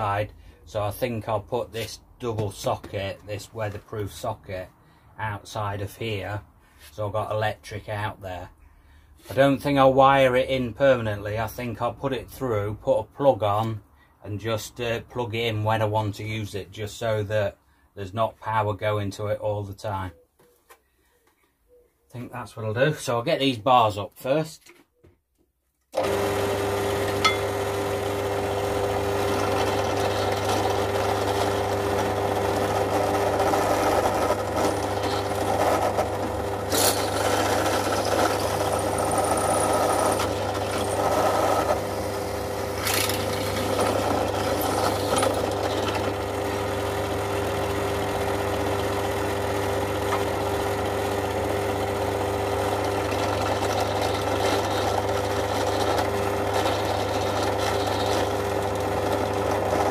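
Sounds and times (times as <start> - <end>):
drill bit cutting steel: 26.0 - 49.2, 49.8 - 59.9
drill press motor humming: 26.0 - 59.9.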